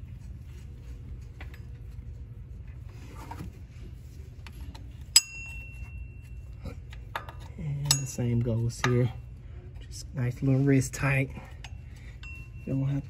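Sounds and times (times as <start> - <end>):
steady low hum: 0.0 - 13.0
metal tool clinking on metal: 5.1 - 9.2.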